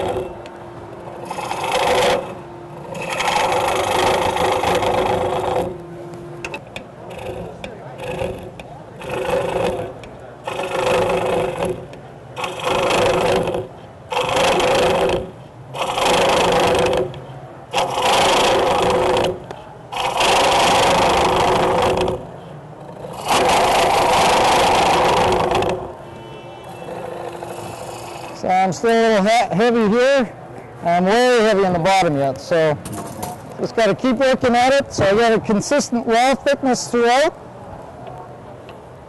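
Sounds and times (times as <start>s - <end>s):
turning tool cutting wood: 0.0s - 0.4s, 1.1s - 5.8s, 7.0s - 22.3s, 22.9s - 25.9s, 26.9s - 28.5s
wood lathe running: 0.0s - 0.4s, 1.0s - 5.8s, 7.0s - 25.9s, 26.7s - 28.6s.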